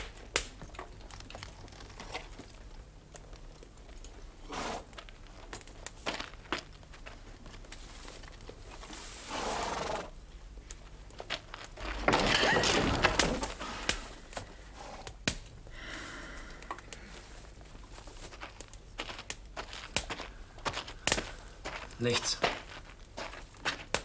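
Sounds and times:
footsteps with scuffs and knocks: 17.3 - 24.0.

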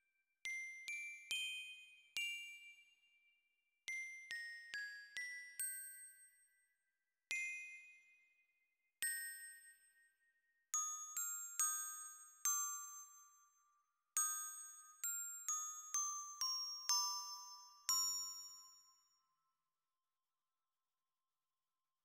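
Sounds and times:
glockenspiel melody: 14.2 - 19.2.

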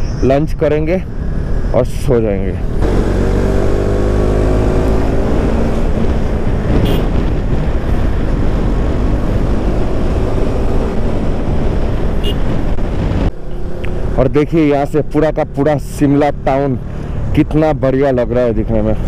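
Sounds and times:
wind rush on microphone: 0.0 - 14.3.

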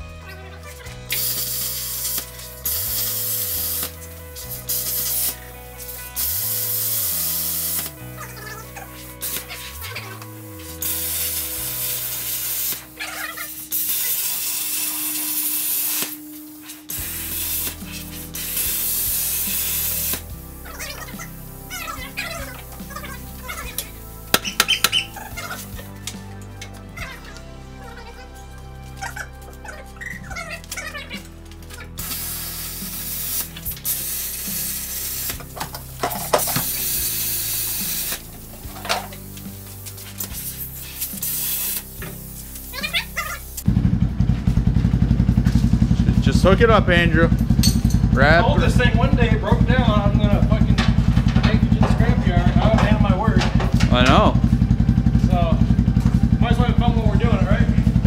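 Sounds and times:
plasma cutter hissing: 1.1 - 7.9, 8.9 - 25.9, 32.0 - 43.7.

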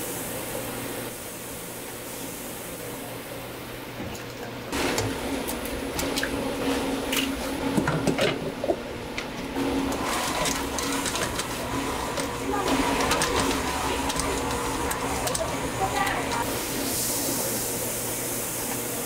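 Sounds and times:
steady hum: 4.7 - 19.0.

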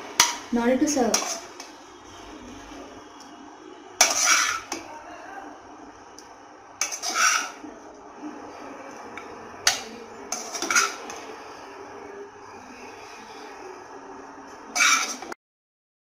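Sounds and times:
spoon scraping metal frying pan: 0.2 - 1.9, 4.0 - 4.8, 6.8 - 7.7, 9.6 - 11.4, 14.7 - 15.4.

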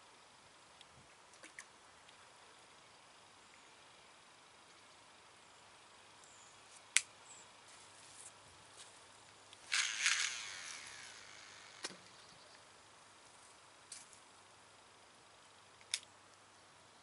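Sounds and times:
reel spool whirring: 9.6 - 12.4
fishing reel click: 9.7 - 12.0.

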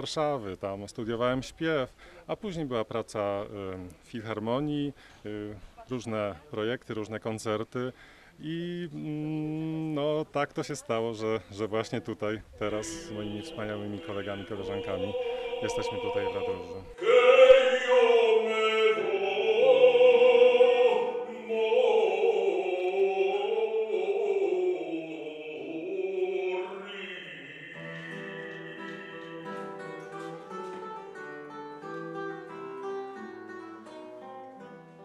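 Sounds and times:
man singing long notes: 12.6 - 30.2
classical guitar plucking: 12.7 - 17.0, 27.6 - 35.0.

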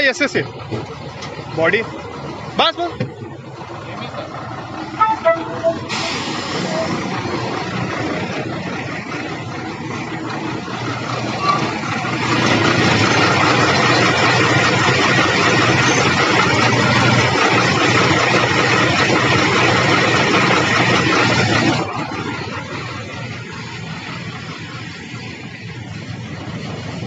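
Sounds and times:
diesel truck engine idling: 0.0 - 27.0.

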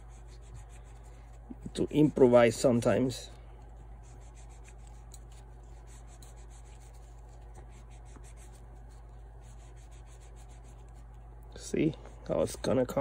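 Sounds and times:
toothbrush scrubbing: 0.0 - 1.8, 3.8 - 11.2
low steady hum: 0.0 - 13.0.

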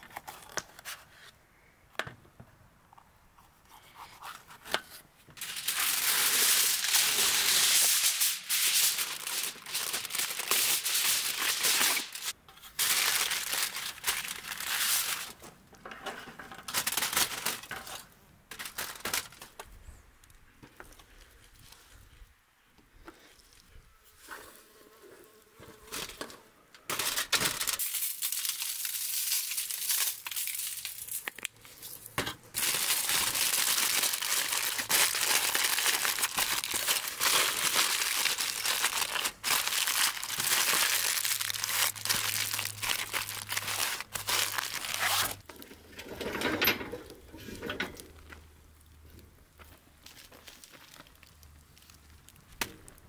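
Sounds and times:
aluminium foil crinkling: 5.4 - 19.7, 26.9 - 45.6, 49.9 - 53.0.

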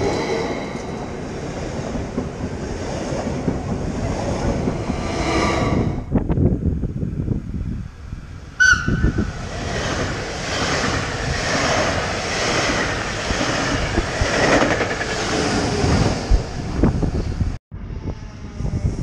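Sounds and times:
train wheel and rail noise: 0.0 - 19.0
train horn blast: 8.6 - 9.3.

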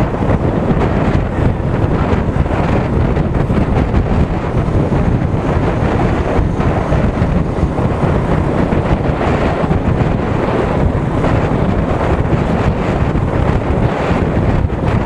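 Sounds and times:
road noise: 0.0 - 15.0
wind buffeting microphone: 0.0 - 15.0.

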